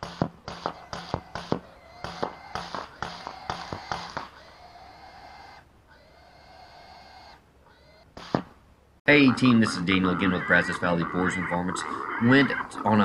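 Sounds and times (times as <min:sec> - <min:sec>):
rapid rifle shots: 0:00.0 - 0:04.4, 0:08.1 - 0:08.6.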